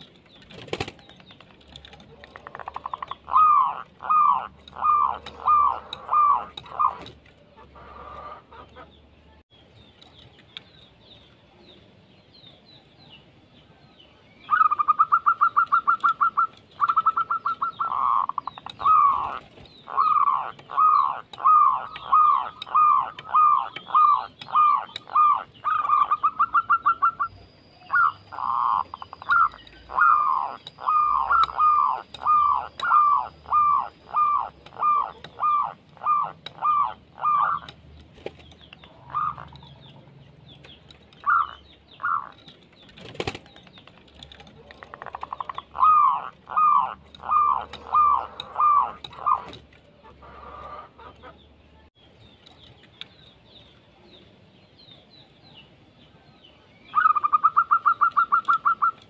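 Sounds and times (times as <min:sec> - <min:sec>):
dove rattling trills: 0:00.0 - 0:09.1, 0:14.5 - 0:51.6, 0:56.9 - 0:59.0
dove cooing: 0:01.9 - 0:08.9, 0:14.5 - 0:37.8, 0:38.8 - 0:39.9, 0:41.2 - 0:42.5, 0:44.2 - 0:51.4, 0:57.0 - 0:59.0.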